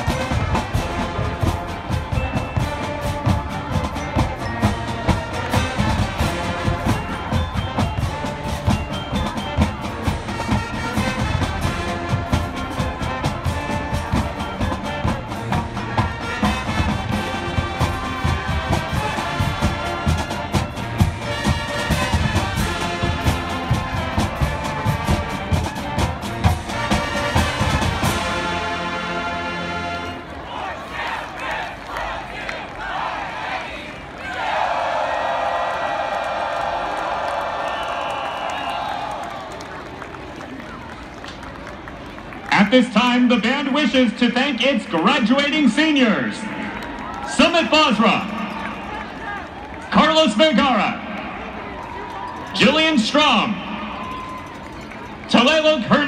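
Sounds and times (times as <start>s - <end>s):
steady drum beat: 0.0s - 28.6s
brass: 0.0s - 33.8s.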